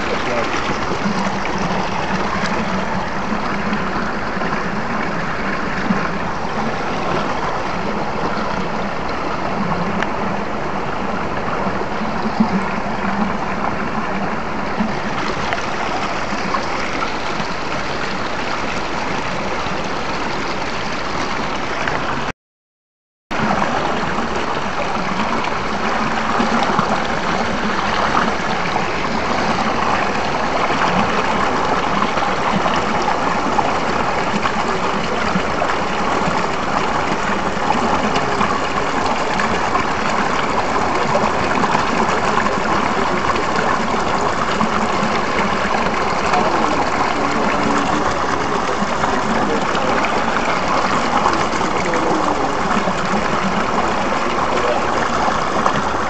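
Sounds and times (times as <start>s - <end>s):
stream rushing over boulders: 0.0s - 22.3s, 23.3s - 56.0s.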